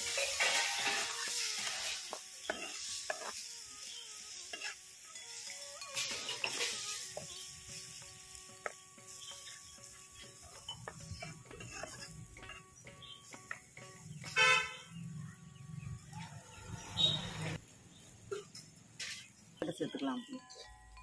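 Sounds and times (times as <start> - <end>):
curry bubbling and sizzling: 0.0 - 19.5
spatula scraping a clay pot: 5.9 - 13.2.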